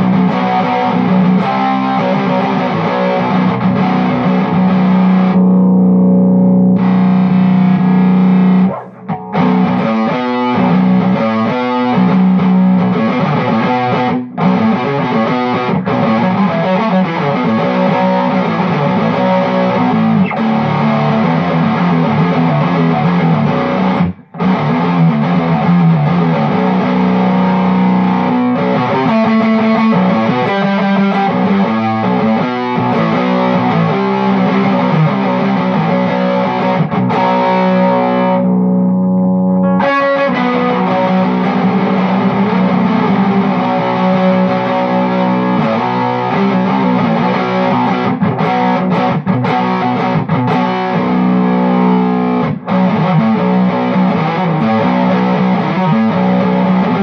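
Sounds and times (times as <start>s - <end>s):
distorted electric guitar riffing: 0.0s - 57.0s.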